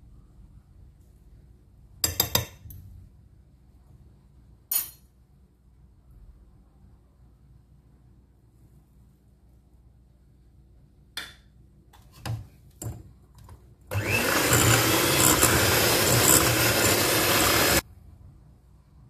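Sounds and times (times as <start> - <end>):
electric hand mixer whirring: 13.9 - 17.8.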